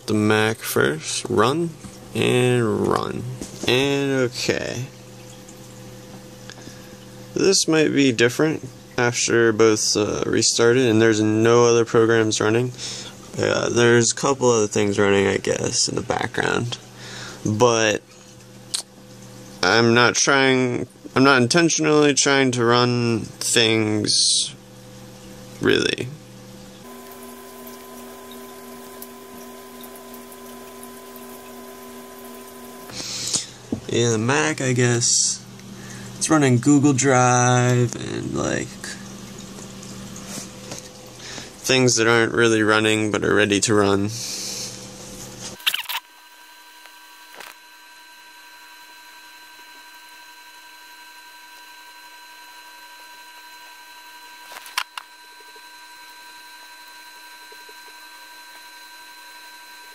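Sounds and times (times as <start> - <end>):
faint whining tones: 26.7 - 33.5
laptop cooling fans humming: 26.8 - 38.6.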